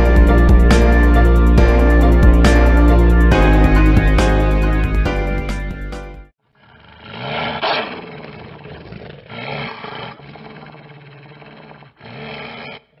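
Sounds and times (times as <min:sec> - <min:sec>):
growling roars: 0:06.6 - 0:13.0.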